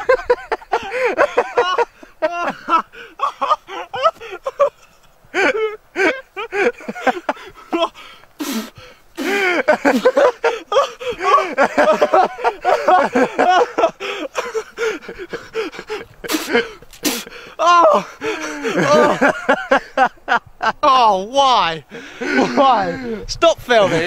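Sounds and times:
people exclaiming excitedly: 0:10.4 - 0:13.7, 0:17.6 - 0:19.4.

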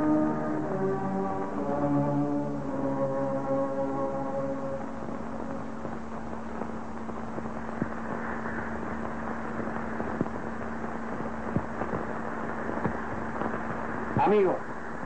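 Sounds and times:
film hiss: 0:00.0 - 0:15.0
crackling pops: 0:04.8 - 0:15.0.

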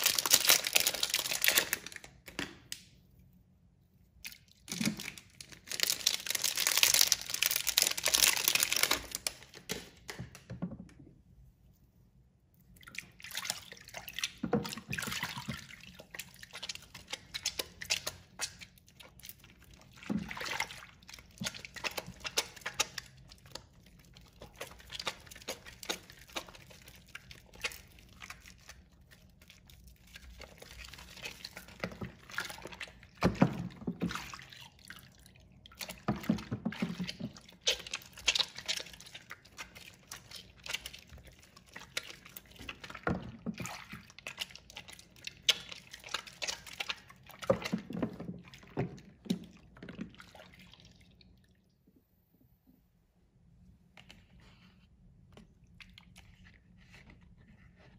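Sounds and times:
wet soap squishing and lathering: 0:00.0 - 0:52.1, 0:53.3 - 0:57.9
water splashing and dripping: 0:30.0 - 0:51.6.

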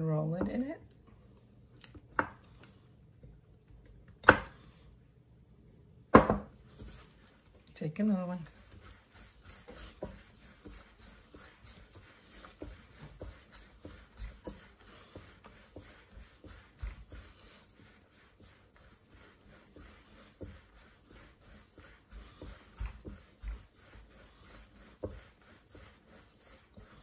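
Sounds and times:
soft dough thumps: 0:06.1 - 0:18.6
hands rubbing dough: 0:06.5 - 0:27.0.

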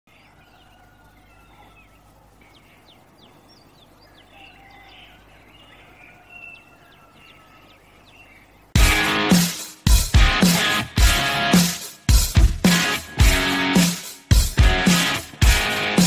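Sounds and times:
faint bird chirps: 0:00.1 - 0:08.8.

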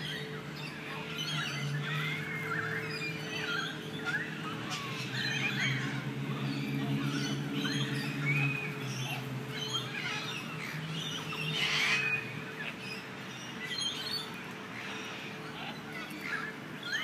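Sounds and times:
birds chirping and squawking: 0:00.0 - 0:17.0.

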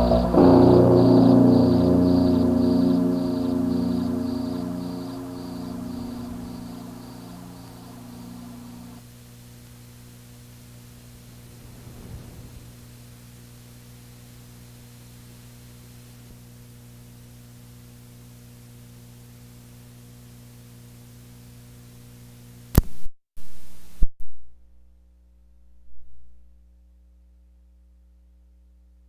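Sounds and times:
low mains hum: 0:00.0 - 0:22.8.

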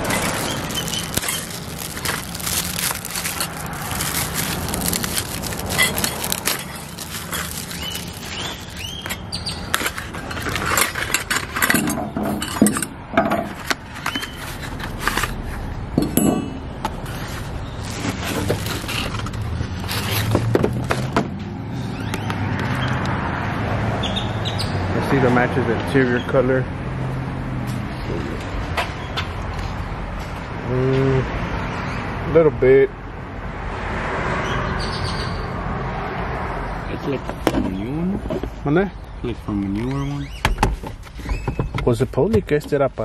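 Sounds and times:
plastic packaging crackling: 0:00.0 - 0:11.6, 0:17.0 - 0:21.1.

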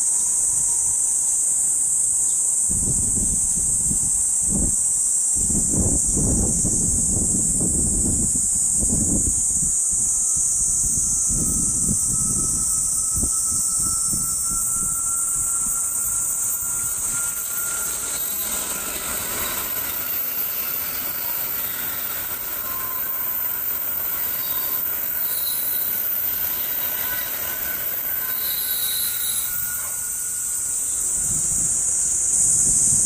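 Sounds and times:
faint high whining tones: 0:00.1 - 0:33.0
bullet train rushing past: 0:10.8 - 0:33.0.

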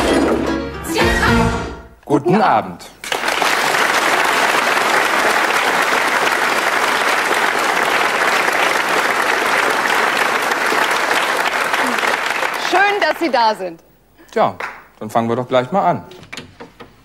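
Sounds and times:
audience applauding: 0:03.0 - 0:13.6.

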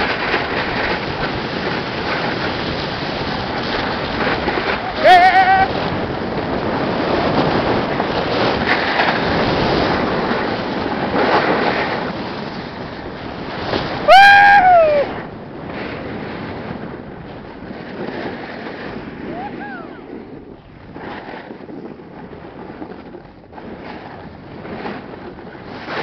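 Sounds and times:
snowboard scraping over snow: 0:00.0 - 0:26.0
wind on microphone: 0:00.0 - 0:26.0
person whooping: 0:04.9 - 0:05.7, 0:14.1 - 0:15.2, 0:19.3 - 0:20.0.

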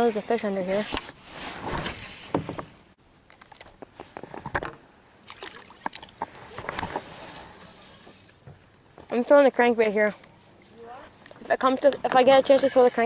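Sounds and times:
fishing gear knocks and clicks: 0:03.2 - 0:07.0.

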